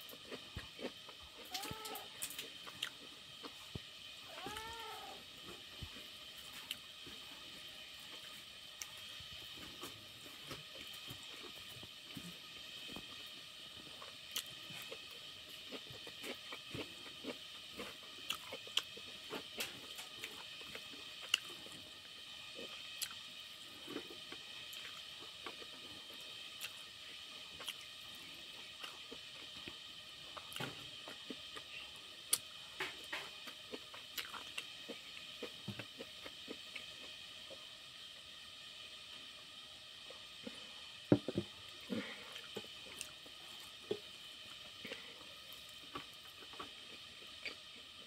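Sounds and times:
faint high hiss: 0.0s - 48.0s
chewing: 14.0s - 21.5s, 33.3s - 37.0s.

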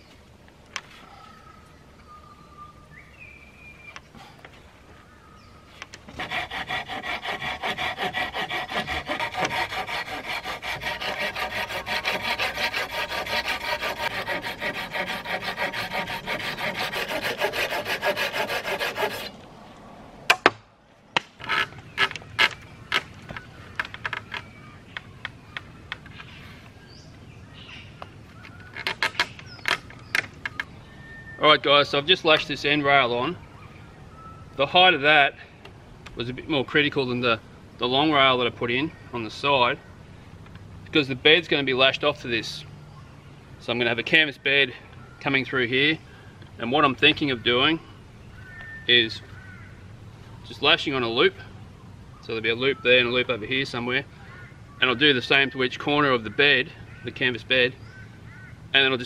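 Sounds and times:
rasping strokes on wood: 6.1s - 19.4s.

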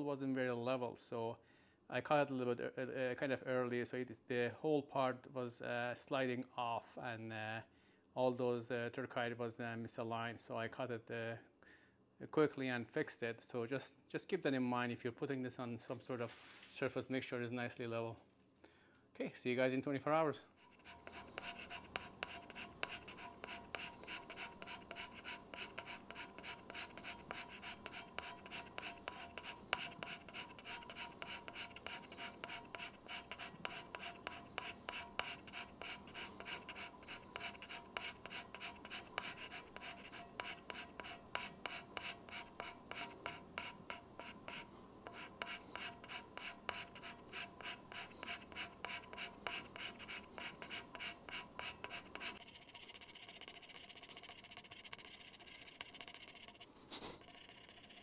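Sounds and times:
hand scraper scraping strips: 20.6s - 52.4s.

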